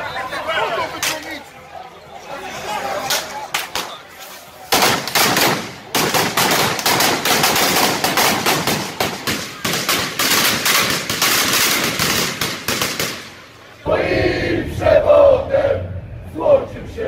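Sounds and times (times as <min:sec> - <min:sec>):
fireworks banging: 0:04.7 - 0:13.4
crowd singing and shouting: 0:13.7 - 0:17.0.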